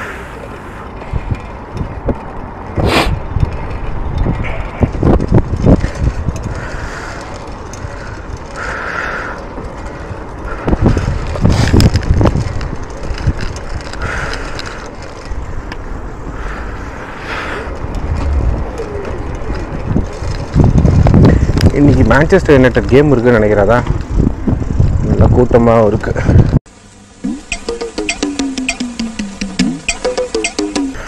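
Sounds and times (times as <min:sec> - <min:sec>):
bicycle road rumble: 0:00.0 - 0:31.0
bike rattling and knocking: 0:00.9 - 0:16.3, 0:17.7 - 0:26.6.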